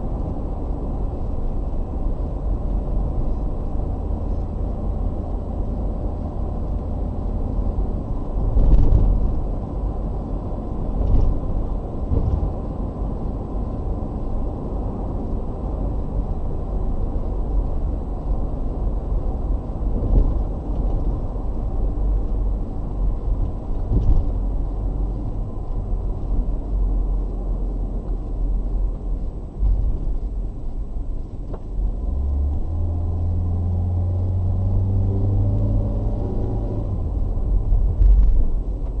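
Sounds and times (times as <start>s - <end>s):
car road and engine rumble: 0.0s - 39.0s.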